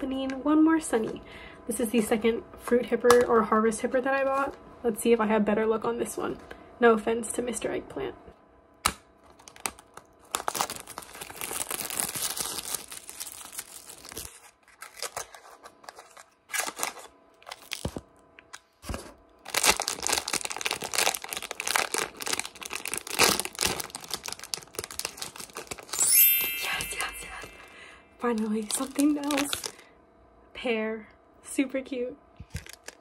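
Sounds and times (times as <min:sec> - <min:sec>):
foil wrapper crinkling: 0:09.2 - 0:29.8, 0:32.5 - 0:33.0.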